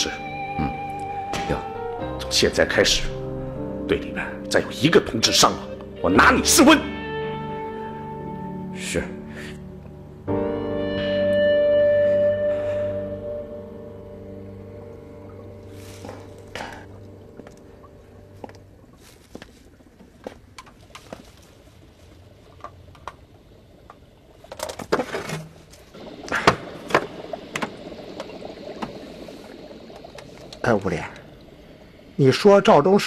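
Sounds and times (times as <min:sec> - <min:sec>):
low held music chord: 0:00.0 - 0:19.3.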